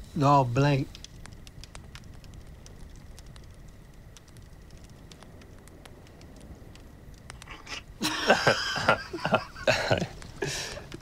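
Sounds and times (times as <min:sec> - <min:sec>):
faint ticks: 0:00.8 - 0:11.0
man laughing loudly: 0:08.0 - 0:10.8.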